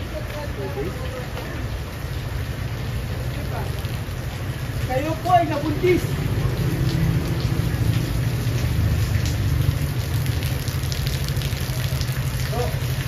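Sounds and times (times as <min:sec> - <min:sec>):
raindrop ticks: 0:00.0 - 0:13.0
steady rain falling: 0:00.0 - 0:13.0.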